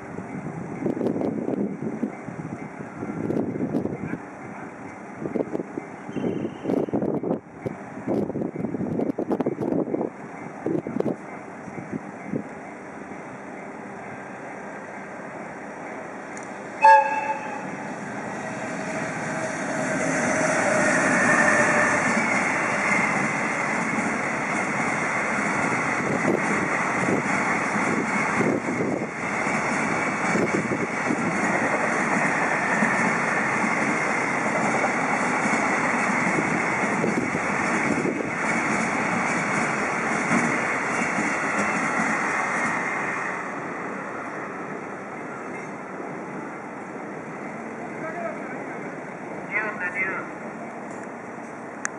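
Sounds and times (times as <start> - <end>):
train wheels rumbling on rails: 0.0 - 49.7
train air whistle: 16.8 - 17.8, 18.7 - 22.8.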